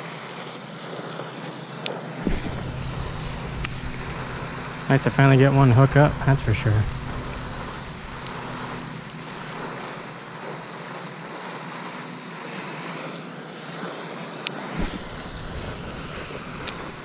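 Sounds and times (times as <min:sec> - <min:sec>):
wind noise on microphone: 0:02.2 - 0:10.0, 0:14.8 - 0:17.0.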